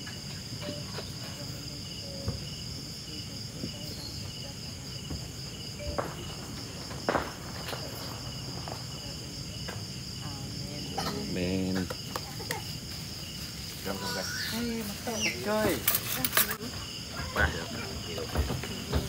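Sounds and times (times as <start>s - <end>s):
night insects chirping: 0.0s - 19.0s.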